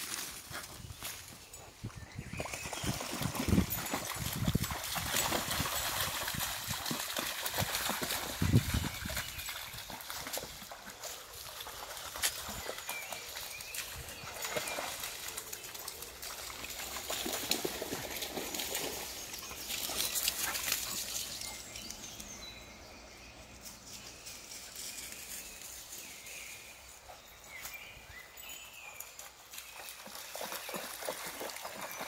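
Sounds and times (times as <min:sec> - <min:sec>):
dogs splashing through water: 0:02.4 - 0:22.2, 0:29.0 - 0:32.0
small birds chirping: 0:17.9 - 0:29.2.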